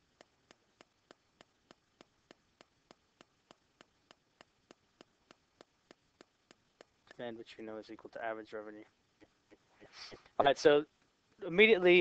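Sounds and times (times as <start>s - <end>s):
faint even ticking: 0.0s - 8.2s.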